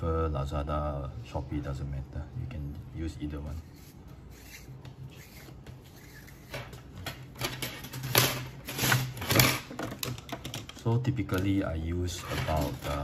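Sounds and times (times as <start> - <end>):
plastic tubing rustling and clicking: 4.8 - 13.0.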